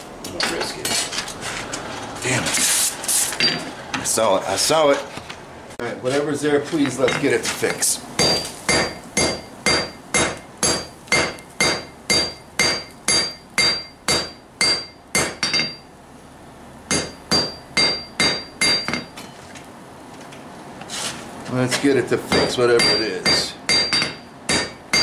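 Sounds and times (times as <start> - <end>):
hammer ringing on anvil: 8.2 - 15.8, 16.9 - 19.3, 22.3 - 25.0.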